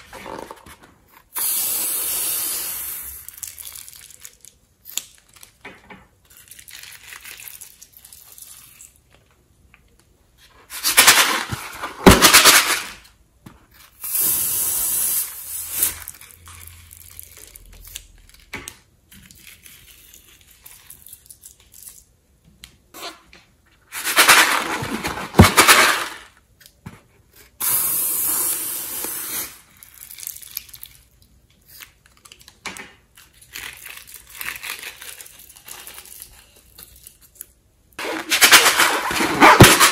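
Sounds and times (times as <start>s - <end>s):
steady hiss: 1.3s - 3.3s.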